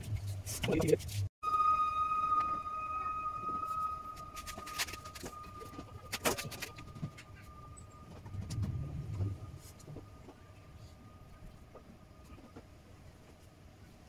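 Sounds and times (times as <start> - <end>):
high-pitched tone: 1.4 - 12.2.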